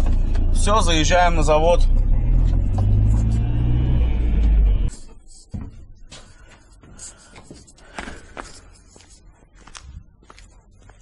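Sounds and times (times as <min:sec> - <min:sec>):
van engine and road rumble: 0:00.0 - 0:06.9.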